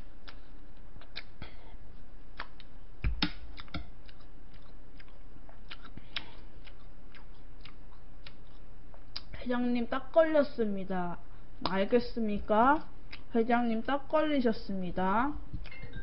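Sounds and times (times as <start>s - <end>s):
mouth eating sounds: 0.2s - 1.6s, 2.3s - 9.4s.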